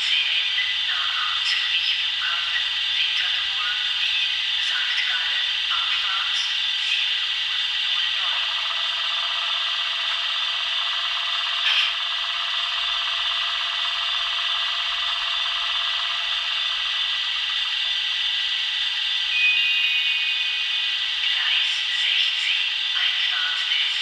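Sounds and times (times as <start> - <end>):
electric locomotive motor whine: 0.0 - 24.0
short high tone: 19.3 - 20.8.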